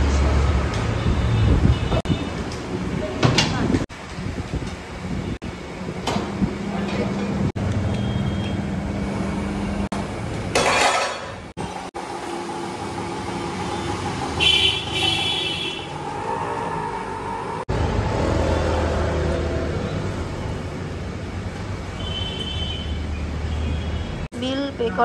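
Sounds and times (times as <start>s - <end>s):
traffic: 0.0s - 25.0s.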